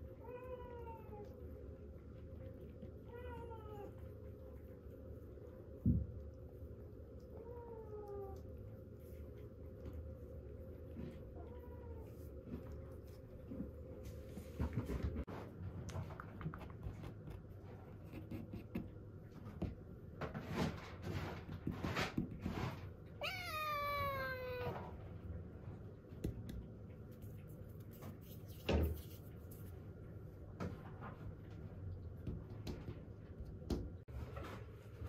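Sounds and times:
kitten meowing: 23.2s - 24.8s.

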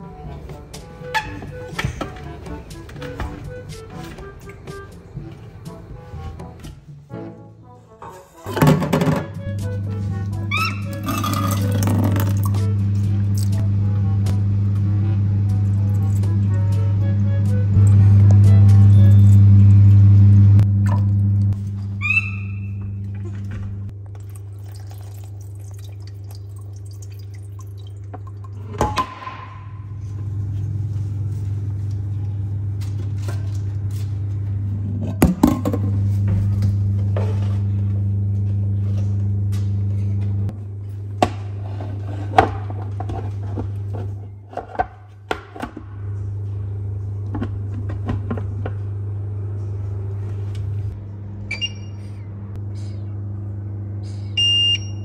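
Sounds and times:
pots and lids clattering: 8.0s - 9.4s
steady low hum: 8.4s - 55.0s
water poured into pot: 24.0s - 28.7s.

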